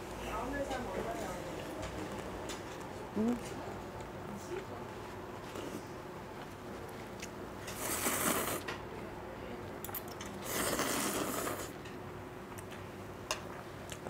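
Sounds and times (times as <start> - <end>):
person slurping noodles: 7.7 - 8.6, 10.4 - 11.8.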